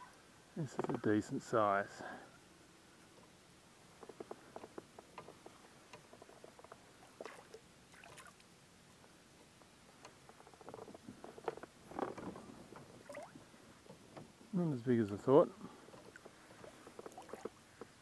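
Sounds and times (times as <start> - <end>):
small water splashes: 7.0 - 8.5, 13.0 - 13.5, 16.1 - 17.6.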